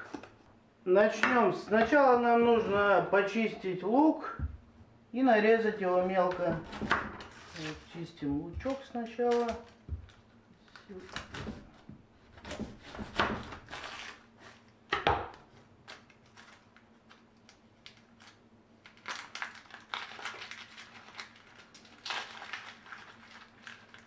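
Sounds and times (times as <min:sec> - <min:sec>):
onion skin crackling: 0:05.9 - 0:11.8, 0:15.8 - 0:24.0.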